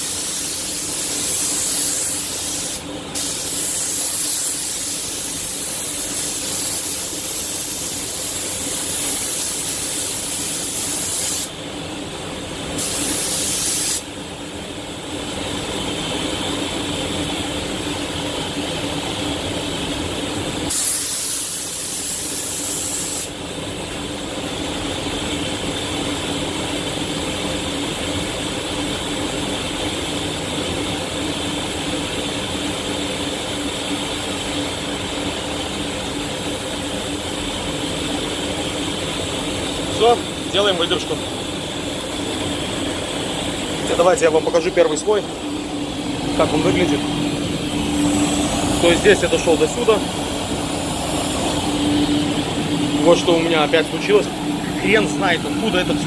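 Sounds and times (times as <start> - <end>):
spray gun hissing: 0.0 - 11.5, 12.8 - 14.1, 20.7 - 23.4, 44.9 - 56.0
steady low hum: 0.0 - 56.0.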